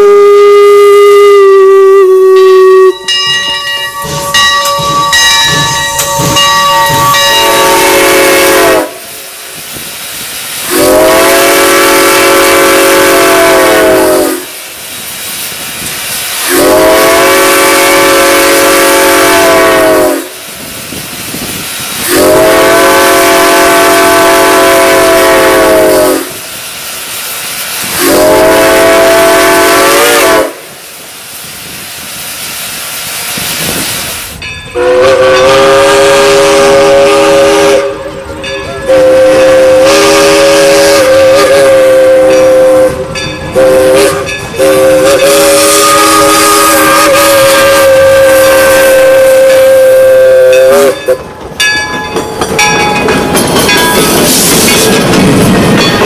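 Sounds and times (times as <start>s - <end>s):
steam whistle blasts: 0.0s - 9.4s, 10.6s - 14.7s, 16.3s - 20.5s, 22.0s - 26.6s, 27.8s - 30.9s, 34.7s - 51.2s
steam hissing: 0.0s - 51.4s, 52.4s - 56.0s.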